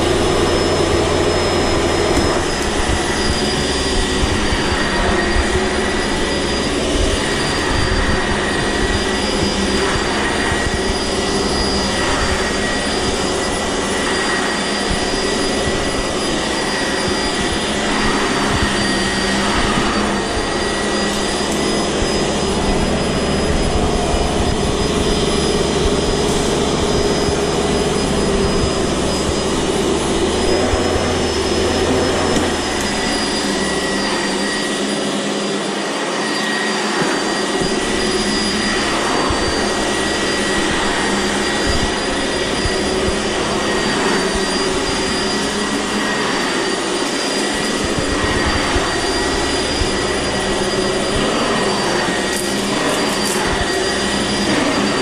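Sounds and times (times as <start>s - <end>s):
low rumble of vacuum moving: 0.0s - 34.3s
vacuum cleaner running on carpet: 0.0s - 55.0s
vacuum motor whine: 0.0s - 55.0s.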